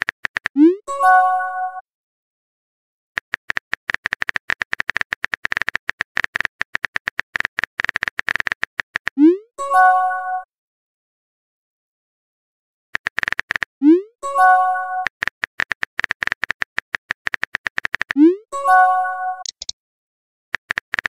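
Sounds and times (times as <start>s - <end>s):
phone keyboard typing clicks: 0.0s - 0.6s, 3.2s - 9.2s, 13.0s - 13.8s, 15.0s - 18.2s, 19.4s - 19.7s, 20.6s - 21.0s
multi-note chat chime: 0.8s - 1.8s, 9.4s - 10.5s, 14.0s - 15.0s, 18.2s - 19.4s.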